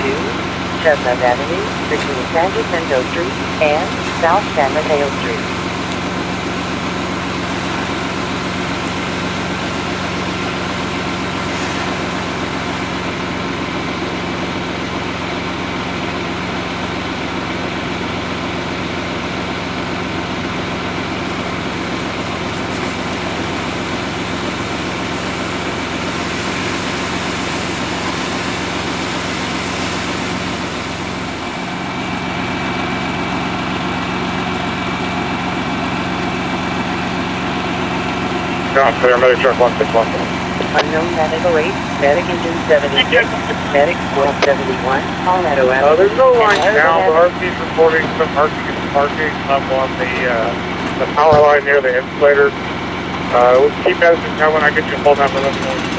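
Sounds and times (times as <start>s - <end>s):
diesel engine running: 0.0s - 55.9s
faint high whine: 38.7s - 52.5s.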